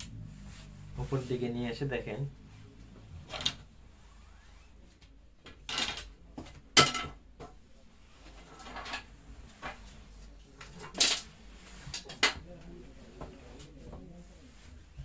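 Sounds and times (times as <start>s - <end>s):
cloth rustling on table: 0.0s - 1.4s, 2.4s - 5.0s.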